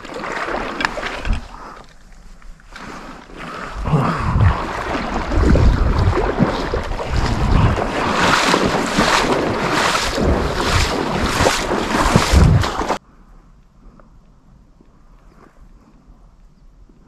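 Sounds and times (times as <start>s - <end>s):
wading splashes in water: 0.0s - 13.0s
wind rumbling on microphone: 0.0s - 17.0s.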